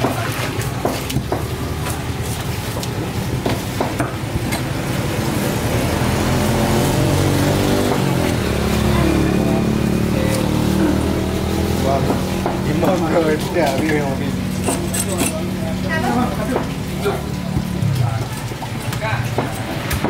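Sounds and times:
vehicle engine running: 0:04.8 - 0:18.7.

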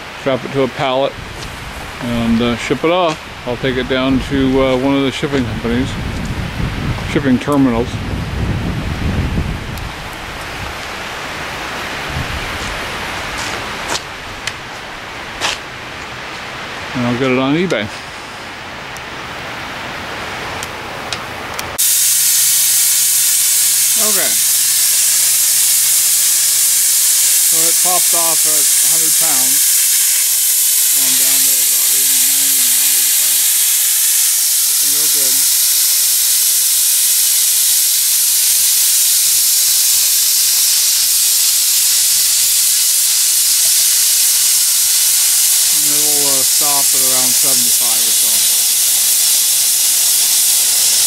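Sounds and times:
steam venting hiss: 0:00.0 - 0:15.6, 0:21.8 - 0:51.0
quiet steady rush: 0:22.4 - 0:36.4, 0:41.0 - 0:51.0.

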